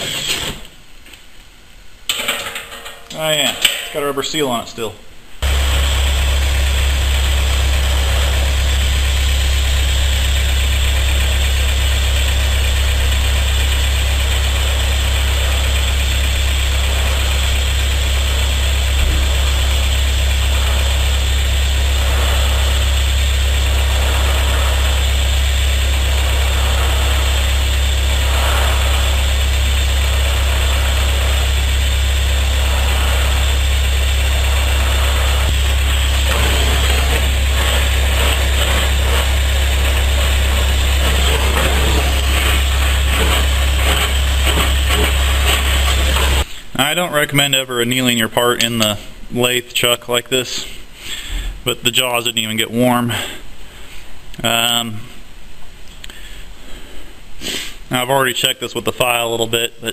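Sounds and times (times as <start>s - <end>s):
faint regular pulsing: 5.4s - 46.4s
metal lathe humming: 5.4s - 46.5s
torch flame hissing: 5.4s - 46.5s.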